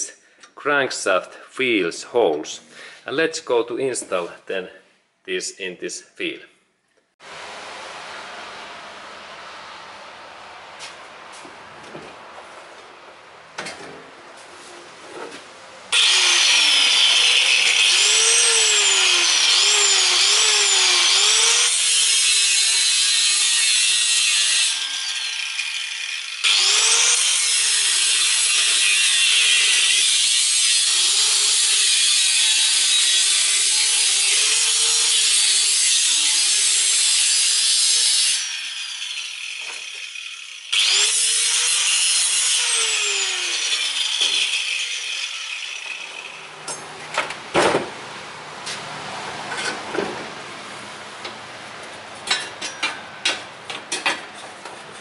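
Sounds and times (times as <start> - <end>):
power tool grinding: 15.9 - 47.0.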